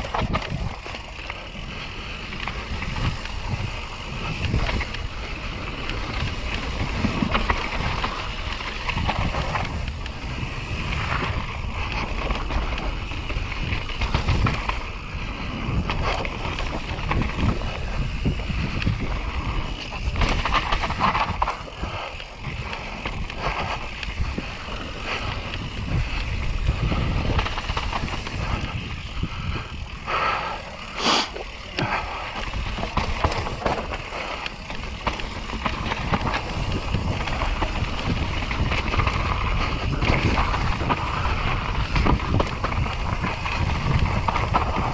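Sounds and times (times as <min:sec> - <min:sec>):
bike knocking and rattling: 0:00.0 - 0:44.9
bike tyres rumbling on dirt: 0:00.0 - 0:44.9.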